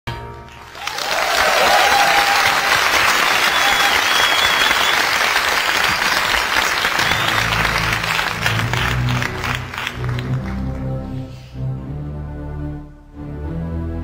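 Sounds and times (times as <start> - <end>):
audience applauding loudly: 0.5 - 10.9.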